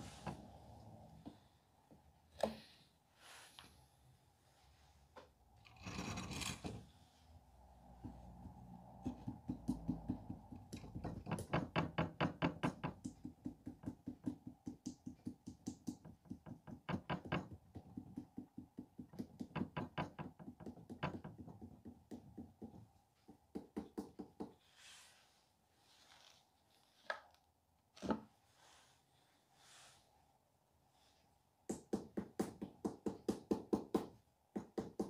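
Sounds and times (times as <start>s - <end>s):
hand tapping clay: 8.0s - 24.6s, 31.6s - 35.0s.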